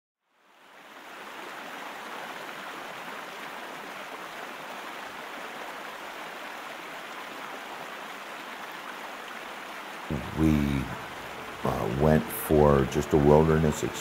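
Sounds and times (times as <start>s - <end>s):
river rapids rushing: 7.7s - 14.0s.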